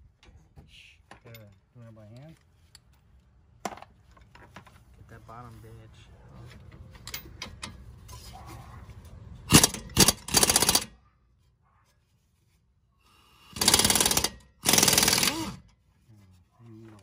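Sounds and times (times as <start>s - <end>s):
air impact wrench hammering: 9.5s - 10.9s, 13.3s - 15.7s.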